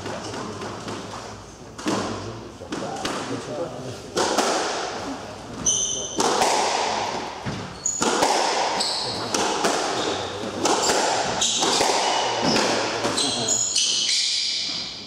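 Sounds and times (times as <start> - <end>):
squash ball smacking rackets and walls: 0.0 - 3.4, 4.1 - 15.0
shoes squeaking on hardwood floor: 5.5 - 6.2, 7.5 - 15.0.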